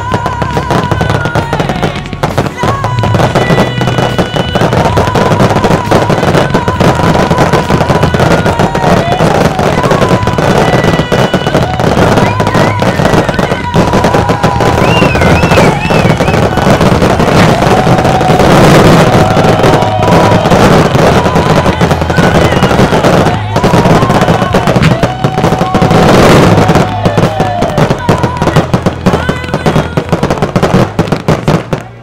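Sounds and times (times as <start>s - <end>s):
fireworks bursting and crackling: 0.0s - 32.0s
pop song with singing: 0.0s - 32.0s.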